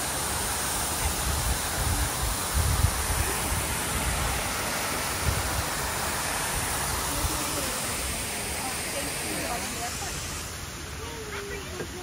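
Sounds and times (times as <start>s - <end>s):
waterfall rushing into pool: 0.0s - 12.0s.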